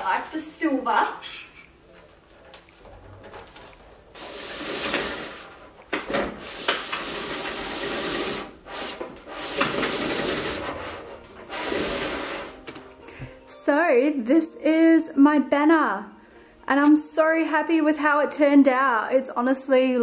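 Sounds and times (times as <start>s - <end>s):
banner sliding and rubbing: 2.9s - 12.7s.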